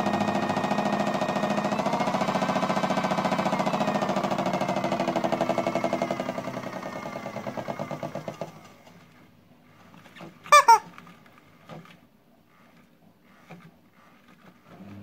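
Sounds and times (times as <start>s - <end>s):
rubber squeeze toy squeaks: 10.4s - 11.0s.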